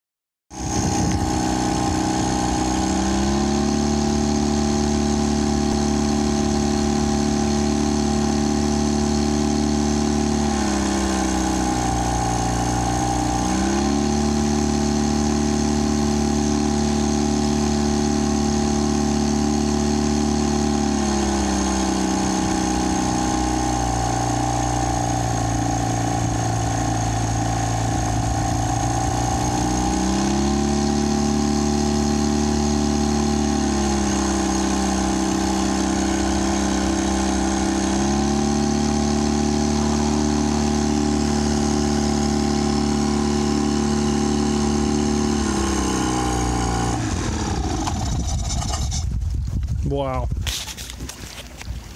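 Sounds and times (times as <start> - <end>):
outboard motor droning: 0.5 - 49.2.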